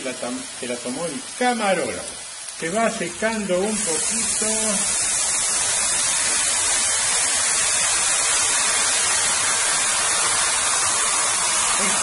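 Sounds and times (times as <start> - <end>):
beer pouring: 0.0 - 12.0
chicken sizzling in pan: 0.0 - 12.0.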